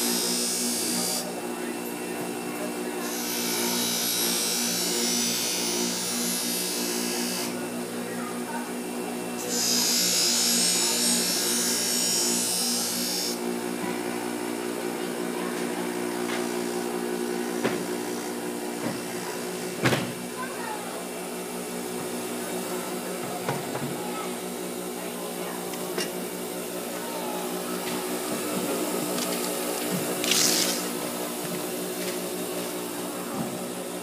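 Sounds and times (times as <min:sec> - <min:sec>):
bench grinder motor humming: 0:00.0 - 0:20.4, 0:24.2 - 0:34.0
blade grinding hiss: 0:30.2 - 0:31.0.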